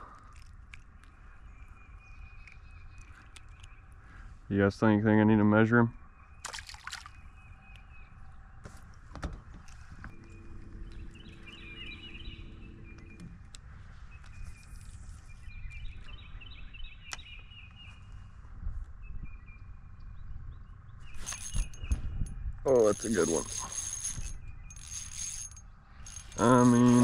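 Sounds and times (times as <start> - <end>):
birds chirping: 0.0 - 27.0
fish splashing into water: 6.4 - 7.2
motor hum: 9.1 - 15.3, 22.7 - 27.0.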